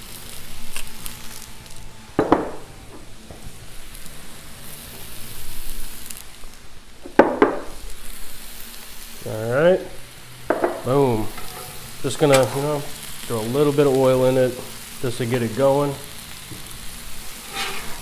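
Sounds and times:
vegetables sizzling on griddle: 0:00.0 - 0:18.0.

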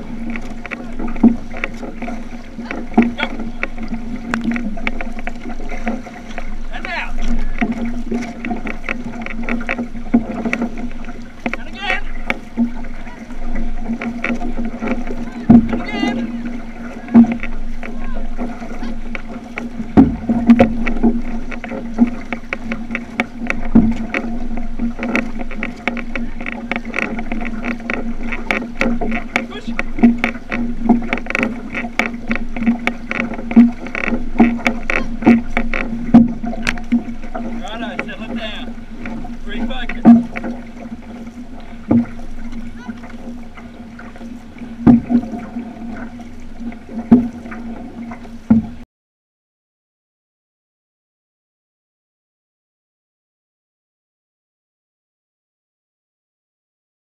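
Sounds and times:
paddles splashing: 0:00.0 - 0:48.8
water slapping along hull: 0:00.0 - 0:48.9
loud paddle knock: 0:19.9 - 0:21.1.

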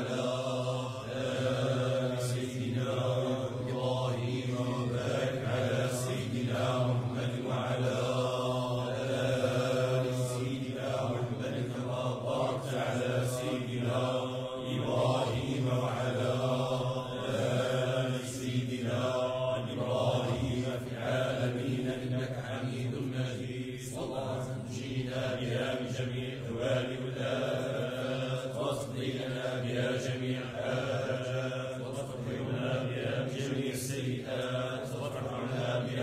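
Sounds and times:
men chanting: 0:00.0 - 0:36.0.

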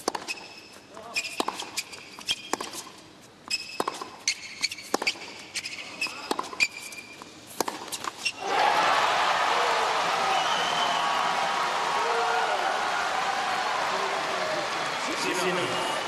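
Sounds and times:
racquets striking tennis ball: 0:00.0 - 0:08.4
shoes squeaking on court: 0:00.0 - 0:08.4
tennis ball bouncing: 0:00.0 - 0:08.4.

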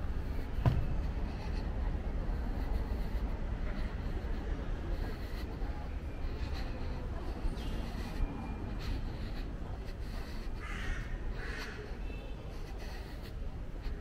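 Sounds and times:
low city rumble: 0:00.0 - 0:14.0
crow cawing: 0:10.6 - 0:11.8.

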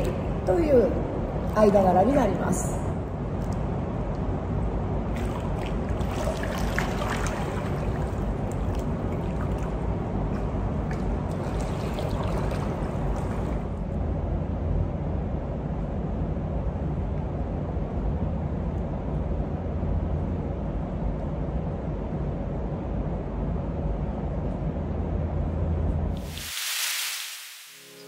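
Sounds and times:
water sloshing and splashing: 0:03.2 - 0:13.8.

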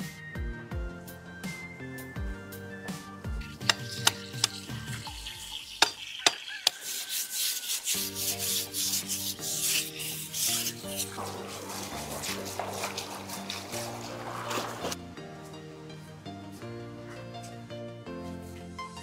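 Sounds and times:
background music: 0:00.0 - 0:06.4, 0:07.8 - 0:19.0
knife scraping bamboo: 0:03.4 - 0:05.1, 0:05.7 - 0:15.0.

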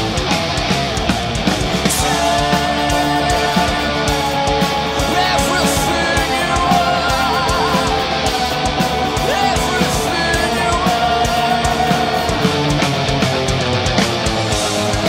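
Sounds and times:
distorted electric guitar: 0:00.0 - 0:15.0
drum kit beat: 0:00.0 - 0:15.0
man singing with vibrato: 0:01.8 - 0:13.5.

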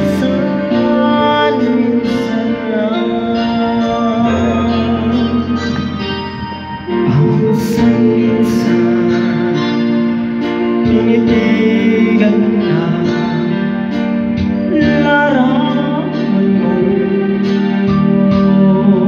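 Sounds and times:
karaoke backing track with guitar: 0:00.0 - 0:19.0
person singing into microphone: 0:00.0 - 0:19.0.

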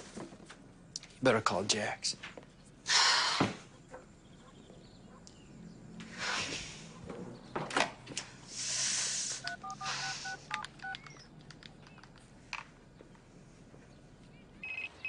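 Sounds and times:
electronic telephone ring: 0:09.4 - 0:11.2
phone keypad two-tone beeps: 0:09.5 - 0:11.2, 0:14.6 - 0:15.0.

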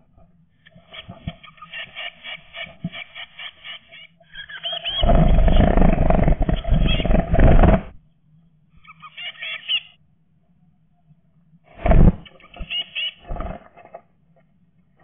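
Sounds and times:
bird chicks calling: 0:03.2 - 0:07.7
wings flapping and scrabbling: 0:04.8 - 0:08.0, 0:11.8 - 0:14.0.

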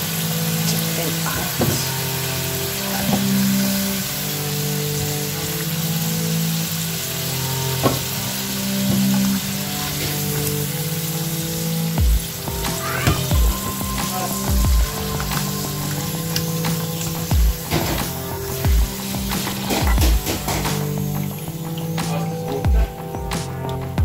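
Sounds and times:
background music: 0:00.0 - 0:24.0
potatoes sizzling in oil: 0:00.0 - 0:24.0
low thumps: 0:12.0 - 0:24.0.

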